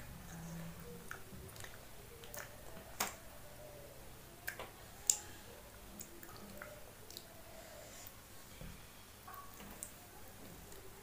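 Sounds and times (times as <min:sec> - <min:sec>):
child chewing: 0:04.4 - 0:08.2.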